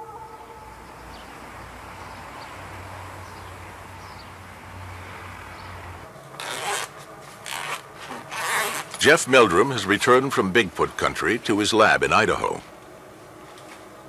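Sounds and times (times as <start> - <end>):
backpack zipper pulled: 6.4 - 9.0.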